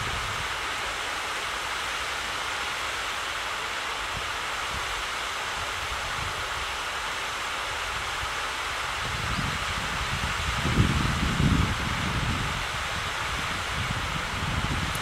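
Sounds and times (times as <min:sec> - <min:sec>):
rushing outdoor ambience: 0:00.0 - 0:15.0
wind buffeting microphone: 0:09.0 - 0:15.0.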